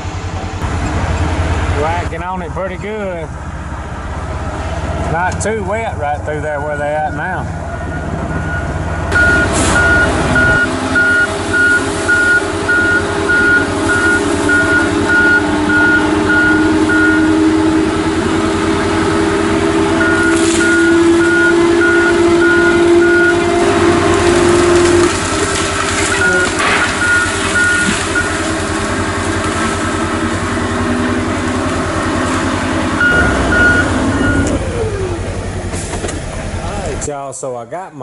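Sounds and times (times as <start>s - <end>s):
diesel engine: 0.0s - 37.2s
backup alarm beeping: 7.8s - 17.4s, 20.0s - 23.6s, 26.2s - 28.4s, 33.0s - 35.1s.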